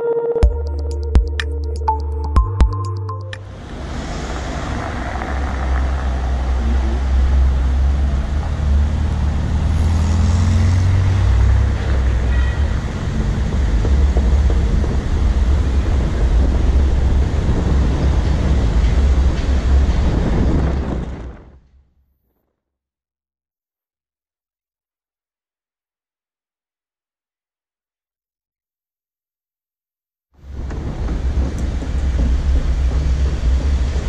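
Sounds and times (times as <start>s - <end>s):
car driving slowly: 3.4s - 21.5s, 30.4s - 34.0s.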